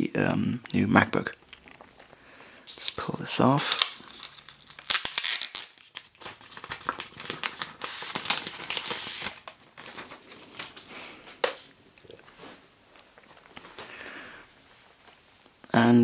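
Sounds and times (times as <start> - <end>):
plastic film crinkling: 1.5 - 11.7
plastic film peeling: 2.7 - 11.7.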